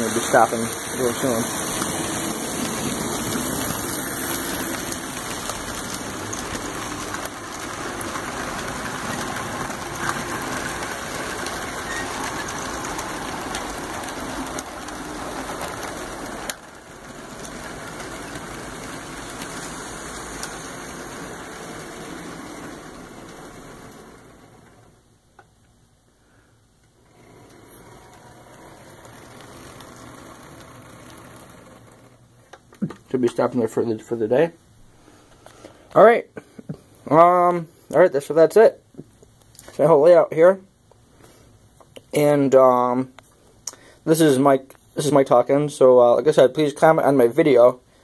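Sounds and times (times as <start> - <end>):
model trains running on track: 0.0 - 25.2, 27.0 - 32.3, 44.1 - 47.9.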